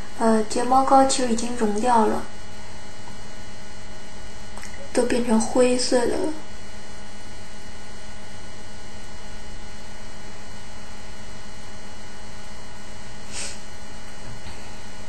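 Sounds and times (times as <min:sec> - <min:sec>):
low electrical hum: 0:00.0 - 0:15.0
steady hiss: 0:12.4 - 0:15.0.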